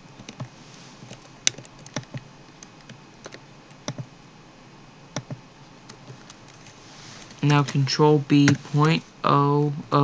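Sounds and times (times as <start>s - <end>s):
keyboard and mouse clicks: 0.2s - 4.1s, 5.1s - 7.8s.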